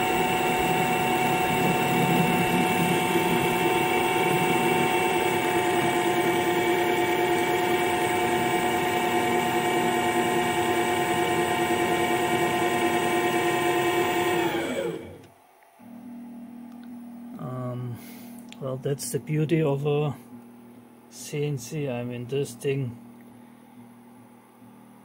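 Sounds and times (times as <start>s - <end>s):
lathe cutting metal: 0.0s - 15.2s
spindle spinning down: 0.0s - 15.2s.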